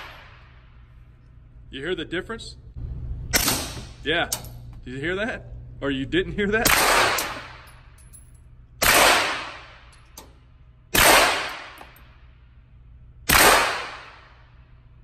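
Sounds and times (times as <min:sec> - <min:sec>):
suppressed gunshots with echo: 0:03.3 - 0:04.0, 0:06.6 - 0:07.7, 0:08.8 - 0:09.9, 0:10.9 - 0:12.0, 0:13.3 - 0:14.6.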